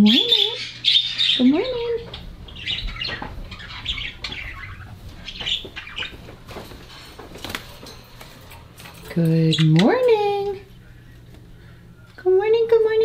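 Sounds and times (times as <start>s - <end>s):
budgerigars chirping: 0.0s - 6.7s.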